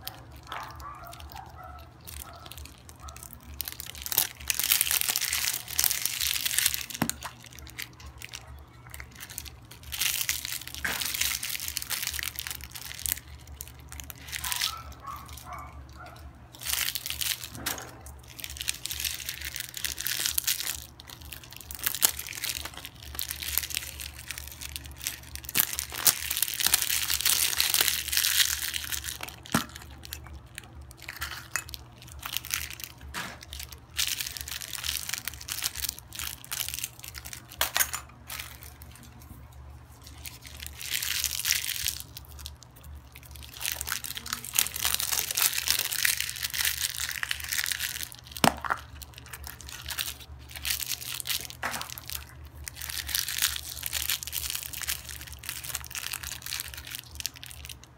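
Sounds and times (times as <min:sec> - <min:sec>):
cellophane crinkling: 0:00.0 - 0:57.9
plastic capsules clicking: 0:43.4 - 0:57.8.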